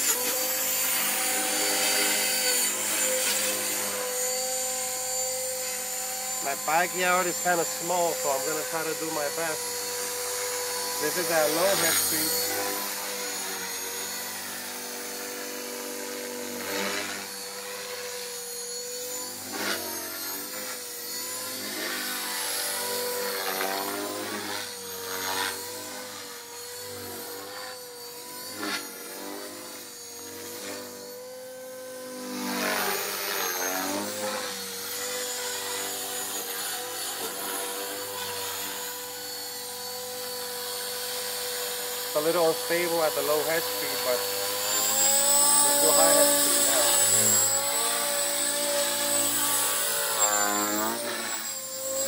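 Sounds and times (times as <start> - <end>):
rushes of rotor noise: 0.0 - 13.6, 42.0 - 52.0
rc helicopter high whine: 0.0 - 52.0.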